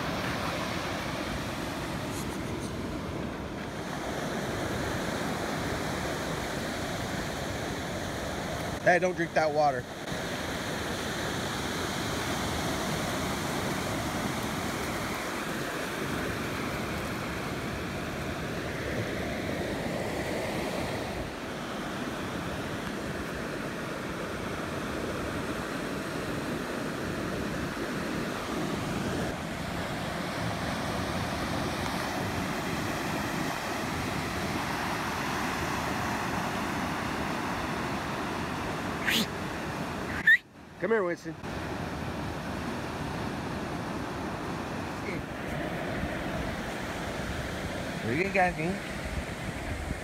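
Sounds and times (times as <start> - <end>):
surf breaking on beach: 9.8 - 40.1
wind on microphone: 48.9 - 50.0.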